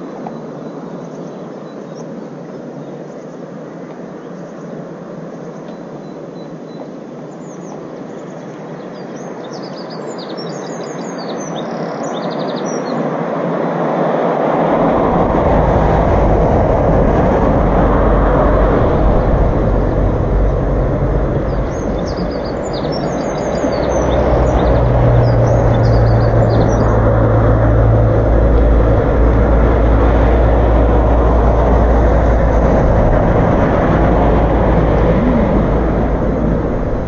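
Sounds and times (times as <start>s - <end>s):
small birds chirping: 5.4s - 13.1s, 19.1s - 27.5s
rushing noise: 13.8s - 37.0s
deep rumble: 14.5s - 37.0s.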